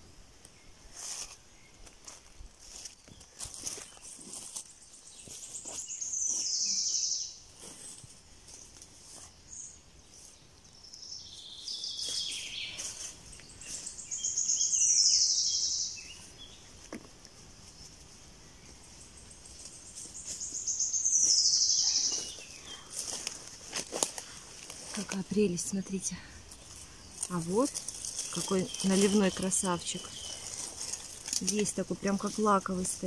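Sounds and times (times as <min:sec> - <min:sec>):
songbird trilling: 0:05.2 - 0:07.4, 0:10.7 - 0:16.7, 0:18.6 - 0:23.4, 0:24.9 - 0:33.0.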